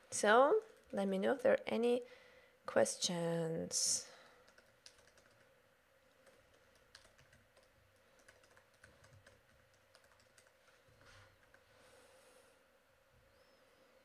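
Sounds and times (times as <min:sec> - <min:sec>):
faint steady hum: 0:00.0 - 0:14.0
keyboard typing clicks: 0:04.4 - 0:05.5, 0:06.1 - 0:10.7.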